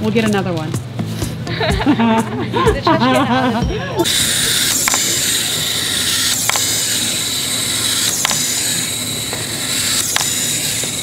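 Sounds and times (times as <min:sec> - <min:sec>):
sharp clicks of wind-up toy: 0:04.0 - 0:11.0
wind-up toy gears whirring: 0:04.0 - 0:11.0.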